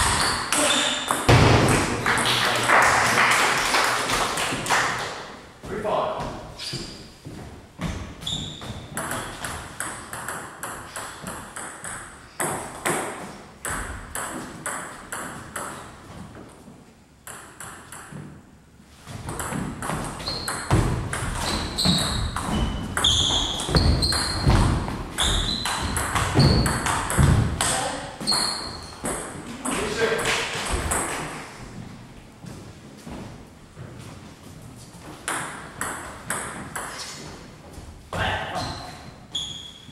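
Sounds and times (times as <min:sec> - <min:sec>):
sneakers squeaking on wooden floor: 0:00.0 - 0:01.4, 0:05.6 - 0:09.6, 0:19.0 - 0:30.0, 0:30.6 - 0:39.9.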